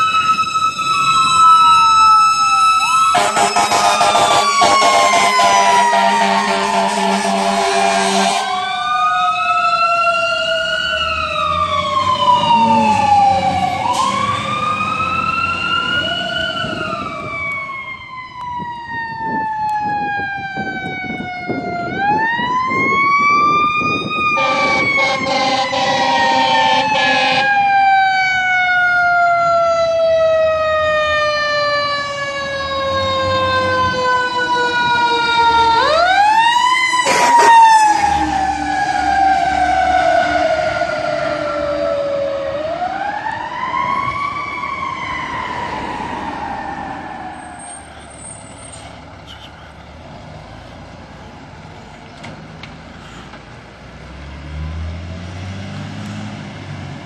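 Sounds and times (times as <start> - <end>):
fire truck siren wailing: 0.0 - 57.0
horn blast: 3.1 - 8.6, 24.4 - 27.4.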